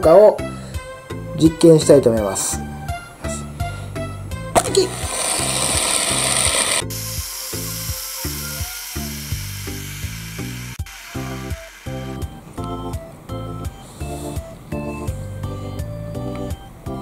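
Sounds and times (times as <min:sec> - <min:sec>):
background music with steady beat: 0:00.0 - 0:17.0
hand spinner clicks: 0:04.6 - 0:12.3
hand spinner whirring: 0:04.6 - 0:12.5.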